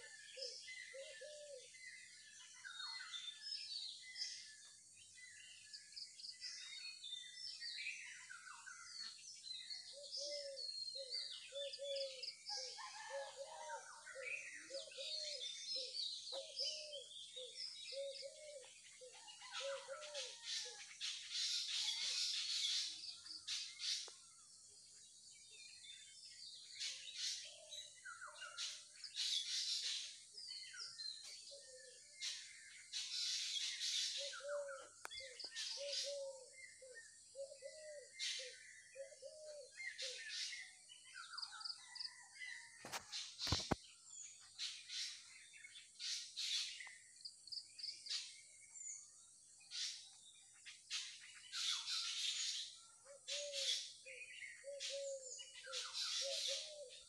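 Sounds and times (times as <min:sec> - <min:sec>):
small birds chirping: 0:14.1 - 0:57.0
lower repeated bird call: 0:51.8 - 0:57.0.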